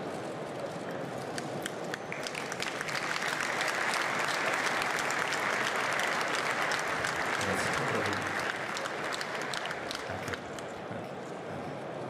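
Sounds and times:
audience applauding: 1.2s - 10.9s.

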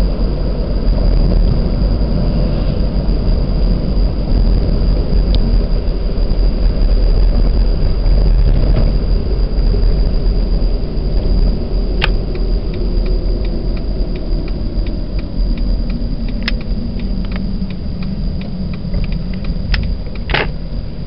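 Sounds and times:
car engine and road rumble: 0.0s - 21.0s
light even ticking: 11.2s - 20.7s.

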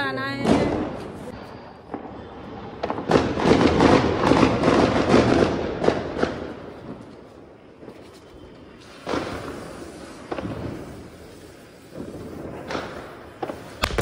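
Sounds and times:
firework fountain hissing and crackling: 0.0s - 14.0s
firecracker bangs: 1.8s - 7.0s, 8.9s - 11.3s, 11.9s - 14.0s.

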